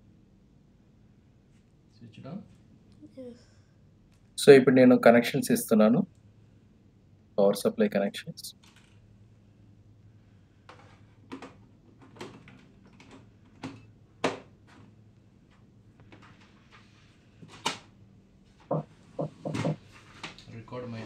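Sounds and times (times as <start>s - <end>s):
faint low hum: 0.0s - 21.0s
plastic cable clicks and knocks: 10.7s - 14.8s
thumps: 18.7s - 19.8s.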